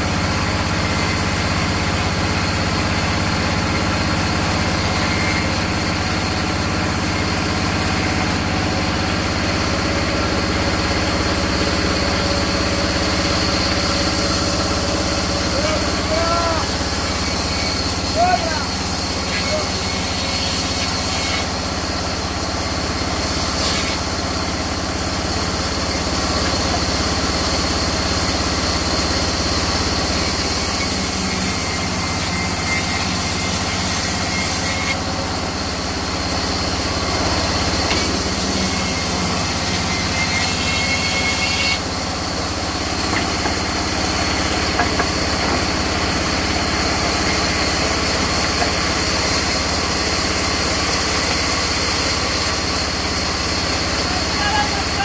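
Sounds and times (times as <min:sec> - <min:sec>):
band saw cutting log: 0:00.0 - 0:55.0.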